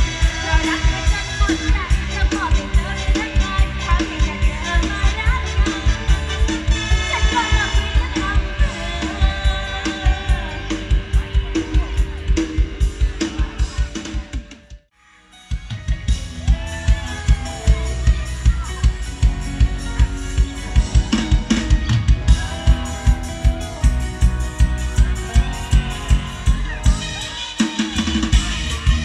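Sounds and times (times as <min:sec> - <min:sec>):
live band music: 0:00.0 - 0:14.8, 0:15.4 - 0:29.0
drum kit beat: 0:00.0 - 0:14.9, 0:15.5 - 0:29.0.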